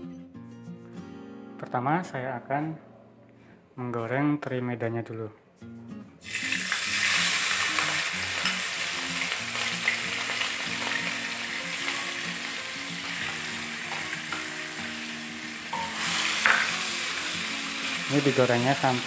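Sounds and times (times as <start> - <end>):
fish sizzling in hot oil: 6.2 - 19.0.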